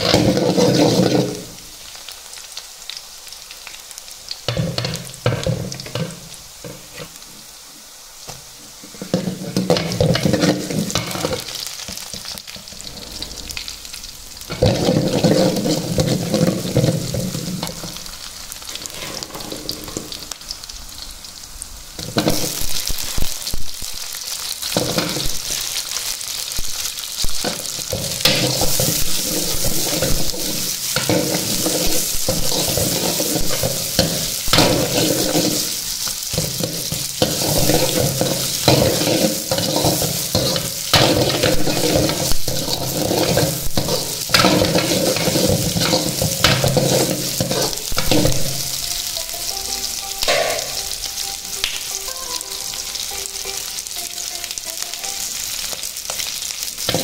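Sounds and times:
oil sizzling with frying food: 0.0s - 57.0s
steel ladle stirring: 27.5s - 48.8s.

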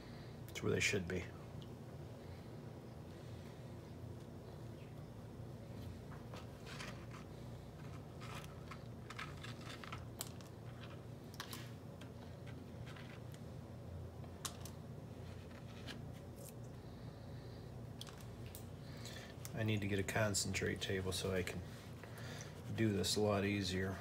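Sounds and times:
low steady hum: 0.0s - 24.0s
gritty sand clicks: 6.4s - 13.4s.

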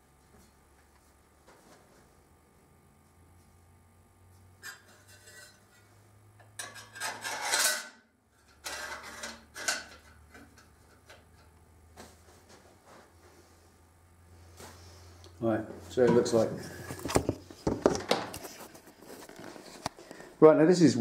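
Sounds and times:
sheet metal clinking and scraping: 4.6s - 11.5s.

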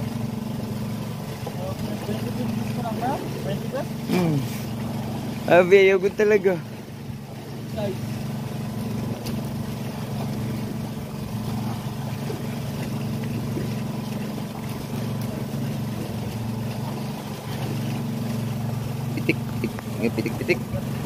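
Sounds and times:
boat engine droning: 0.0s - 21.0s.

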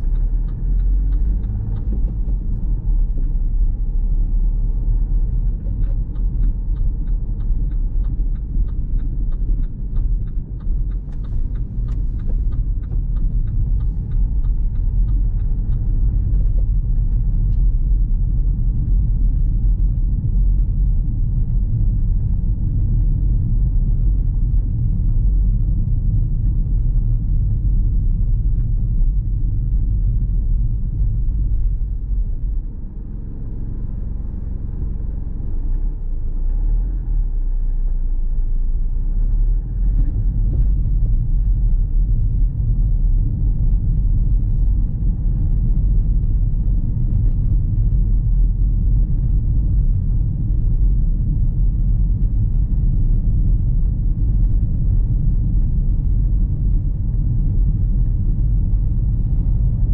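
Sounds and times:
car engine and tyres rumbling: 0.0s - 59.9s.

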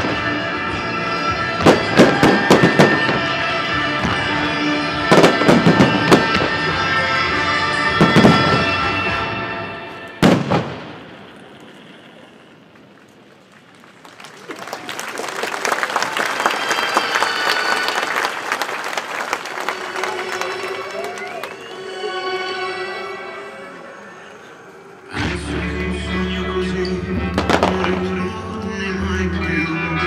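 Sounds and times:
show music: 0.0s - 10.5s, 17.0s - 30.0s
firework bang: 1.6s - 3.3s, 5.1s - 6.7s, 8.0s - 8.9s, 10.2s - 12.2s, 27.4s - 28.2s
crowd applauding: 13.3s - 22.4s.

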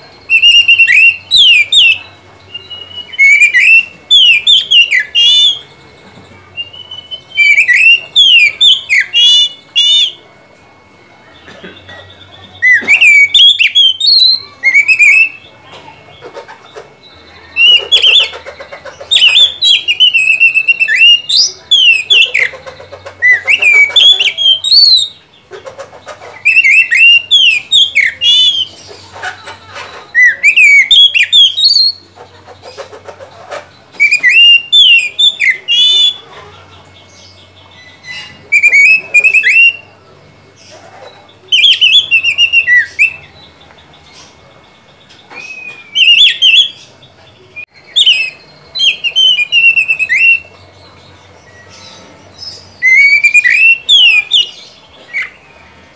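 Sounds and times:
bird singing whistled phrases: 0.1s - 5.8s, 6.5s - 10.3s, 12.0s - 15.6s, 19.1s - 22.6s, 23.2s - 25.2s, 26.4s - 28.8s, 30.1s - 32.1s, 33.9s - 36.2s, 37.4s - 40.0s, 41.2s - 43.4s, 45.3s - 46.8s, 47.5s - 50.6s, 51.4s - 55.5s.

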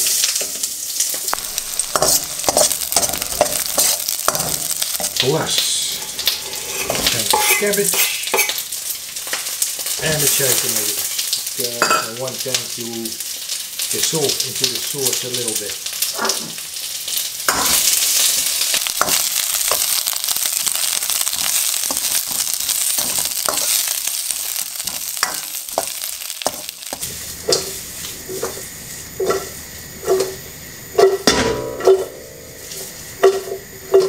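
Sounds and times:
vegetables sizzling in hot oil: 0.0s - 34.0s
metal ladle scraping wok: 1.3s - 8.8s
wok clanking with ringing note: 1.3s - 8.9s, 11.8s - 12.2s, 17.5s - 34.0s.

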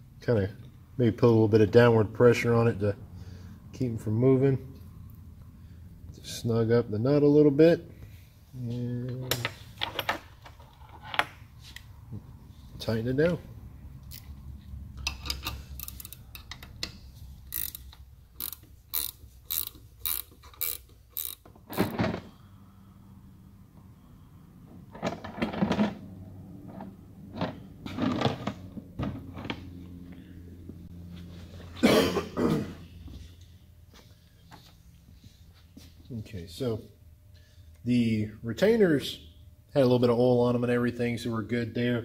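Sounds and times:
ratchet wrench clicking: 15.0s - 21.9s.

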